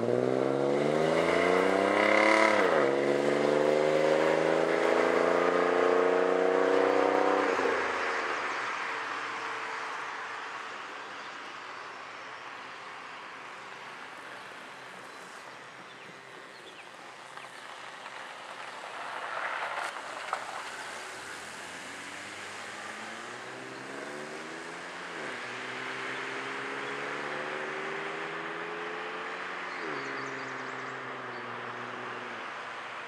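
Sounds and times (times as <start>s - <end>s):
distant engine accelerating: 0.0s - 7.9s
car passing close by: 0.0s - 9.8s, 17.4s - 32.6s.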